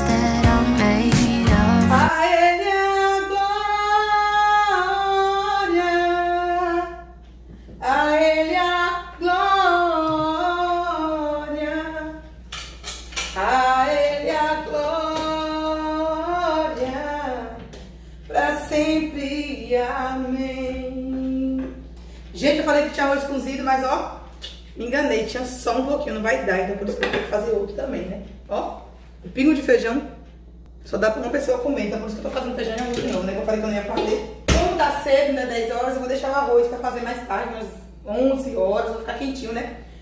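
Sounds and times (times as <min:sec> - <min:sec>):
woman singing long notes: 0:00.0 - 0:07.1.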